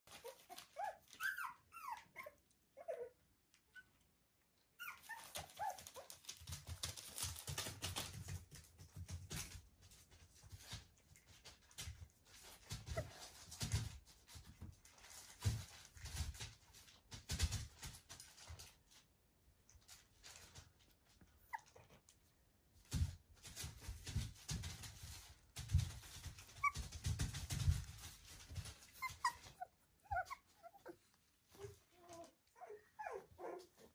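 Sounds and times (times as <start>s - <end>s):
puppies rustling and thumping: 0.1s - 4.0s, 4.7s - 33.9s
puppy whimpering: 0.1s - 4.0s, 4.7s - 6.2s, 21.4s - 22.0s, 26.4s - 27.4s, 28.6s - 33.9s.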